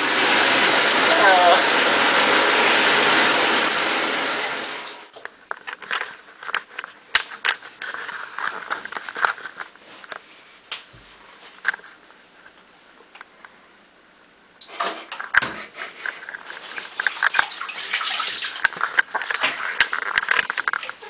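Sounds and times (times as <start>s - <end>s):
water running into bathtub: 0.0s - 5.3s, 14.6s - 21.0s
small splashes and drips: 16.6s - 21.0s.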